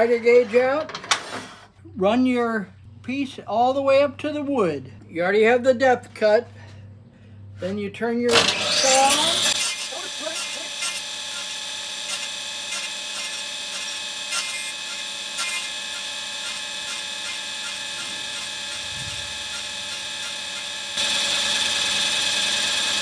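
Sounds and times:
table saw cutting plywood: 8.3 - 23.0.

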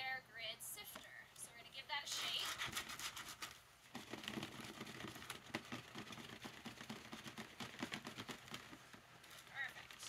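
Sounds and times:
gritty scratches on sifting screen: 2.1 - 7.5.

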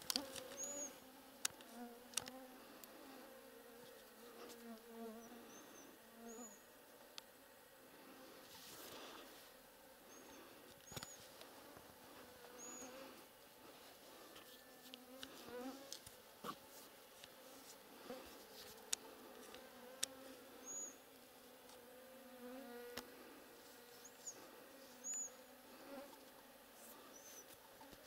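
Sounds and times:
flying insect buzzing: 0.0 - 6.8, 7.8 - 28.0.

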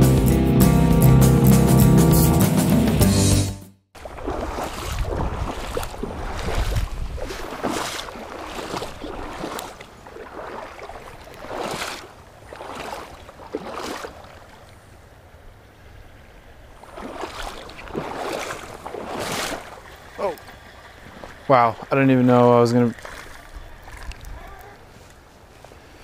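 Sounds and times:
wind rumbling on microphone: 4.0 - 11.6, 23.0 - 25.0
fast creek rushing: 4.0 - 25.6.

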